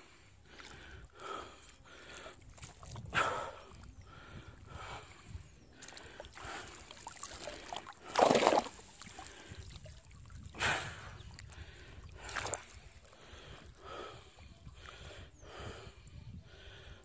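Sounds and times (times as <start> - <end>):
paddle splashing water: 5.8 - 10.6.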